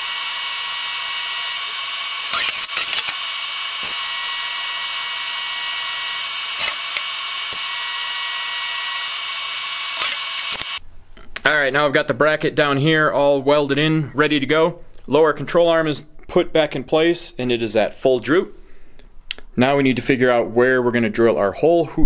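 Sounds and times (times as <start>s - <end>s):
welding arc buzzing hiss: 0.0s - 10.8s
short clicks: 10.0s - 10.8s.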